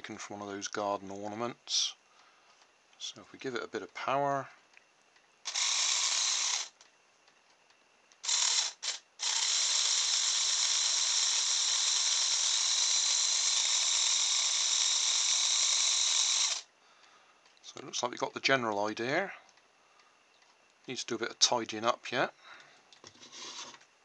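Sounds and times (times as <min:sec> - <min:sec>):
small electric motor running: 0:05.4 - 0:06.8, 0:08.2 - 0:16.7, 0:23.2 - 0:23.8.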